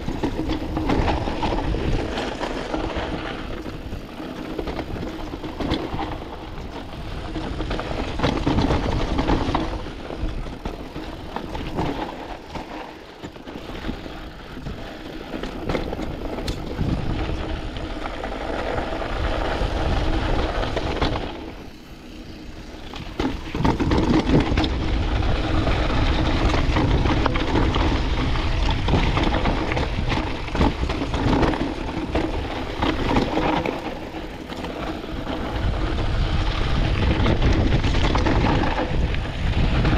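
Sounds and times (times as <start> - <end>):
bike rattling over bumps: 0.0 - 39.9
tyres crunching over gravel: 0.0 - 39.9
wind on microphone: 13.6 - 39.9.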